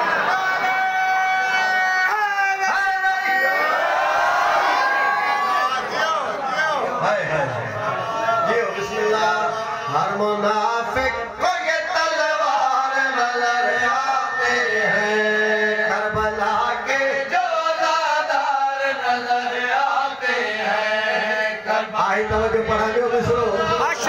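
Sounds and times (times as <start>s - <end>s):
man chanting into microphone: 8.4s - 24.0s.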